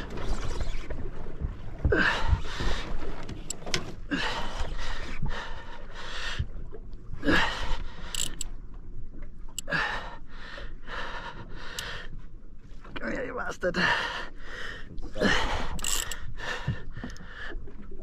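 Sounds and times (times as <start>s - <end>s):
man breathing hard: 9.7s - 12.2s, 13.8s - 17.6s.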